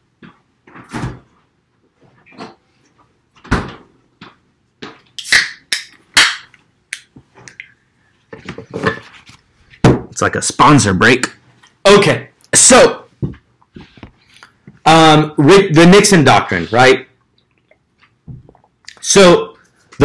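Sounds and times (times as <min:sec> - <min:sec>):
knocks and clatter of handling things: 0:08.3 - 0:10.2.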